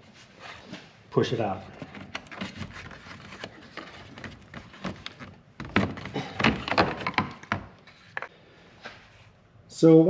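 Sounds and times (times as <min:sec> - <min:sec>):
hard plastic clicking and knocking: 0:04.2 - 0:07.8.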